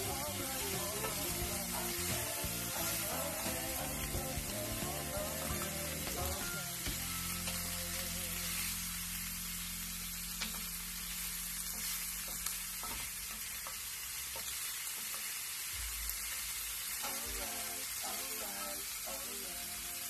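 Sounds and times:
meat and onions sizzling in skillet: 0:00.0 - 0:20.0
wooden spatula knocking pan: 0:11.7 - 0:15.3.

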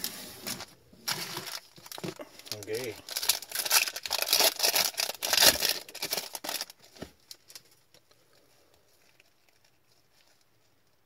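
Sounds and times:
foil wrapper tearing and crinkling: 0:01.1 - 0:07.8.

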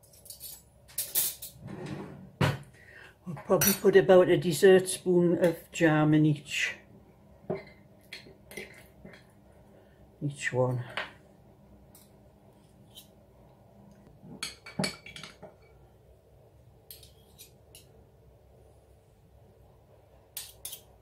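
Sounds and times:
metal spoons clinking on glass jar: 0:00.0 - 0:01.6.

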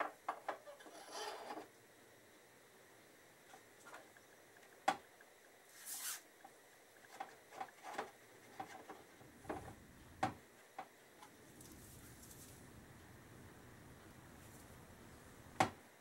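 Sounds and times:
short scraping rub: 0:05.7 - 0:06.2.

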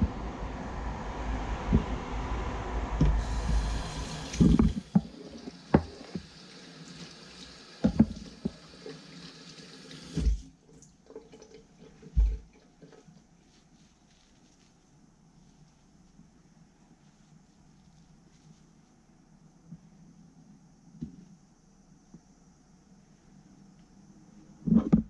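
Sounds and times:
tap water running into sink: 0:03.1 - 0:13.0.

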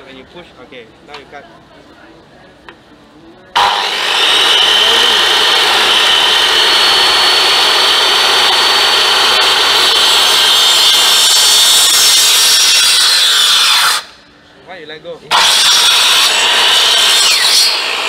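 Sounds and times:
miter saw whining: 0:03.6 - 0:14.2, 0:15.3 - 0:18.0.

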